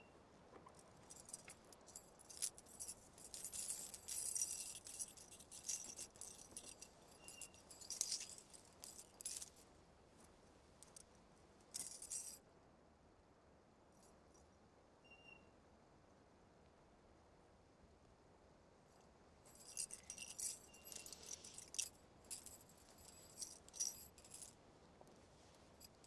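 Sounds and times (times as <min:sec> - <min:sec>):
jewellery jingling: 0:00.8 - 0:09.6, 0:11.7 - 0:12.4, 0:19.5 - 0:24.6, 0:25.7 - 0:26.0
fabric rustling: 0:19.8 - 0:24.5.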